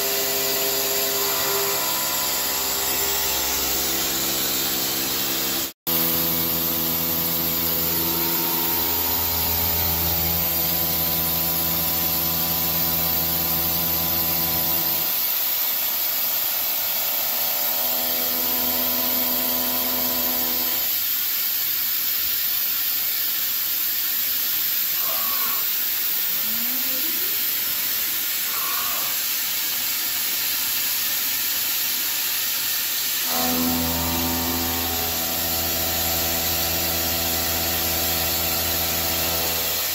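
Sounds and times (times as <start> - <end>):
multi-toned machine hum: 0.0 - 15.2, 33.3 - 39.9
milling machine hiss: 0.0 - 39.9.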